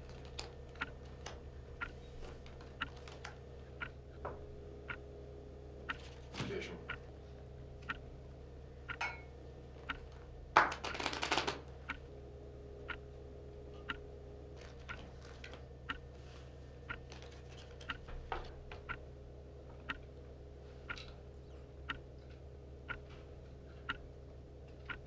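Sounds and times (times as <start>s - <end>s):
low room hum: 0.0s - 25.0s
clock ticking: 3.8s - 4.0s, 4.8s - 5.0s, 7.8s - 8.0s, 11.9s - 12.1s, 13.8s - 14.0s, 15.9s - 16.1s, 17.9s - 18.1s, 18.8s - 19.0s, 19.8s - 20.1s, 21.8s - 22.1s, 22.8s - 23.1s, 23.8s - 24.1s, 24.8s - 25.0s.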